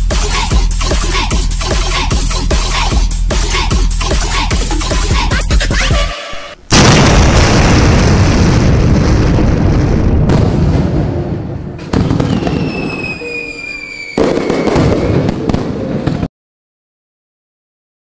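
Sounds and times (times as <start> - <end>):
firework explosion bursts: 6.7 - 16.3
falling whistle: 12.2 - 15.6.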